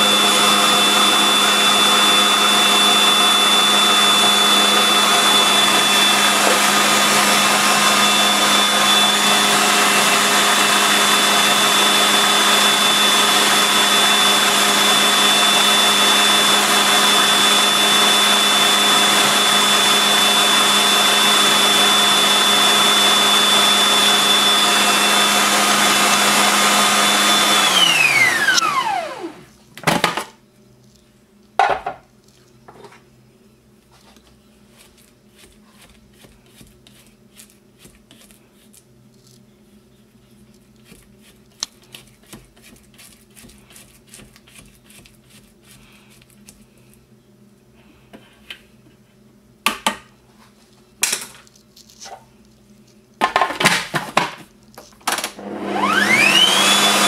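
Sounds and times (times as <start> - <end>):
food processor motor whine: 0.0 - 29.5, 55.1 - 57.0.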